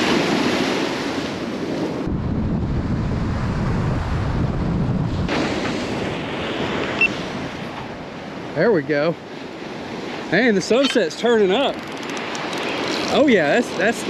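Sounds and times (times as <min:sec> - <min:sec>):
surf breaking on beach: 0:00.0 - 0:08.6, 0:09.2 - 0:14.0
wind buffeting microphone: 0:00.0 - 0:14.0.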